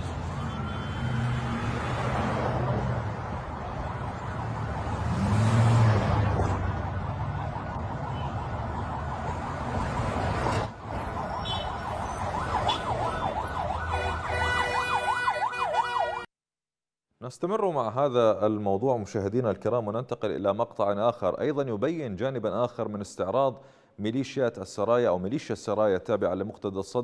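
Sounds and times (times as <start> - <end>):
vehicles driving past: 0.0 - 16.2
siren yelping: 7.3 - 16.3.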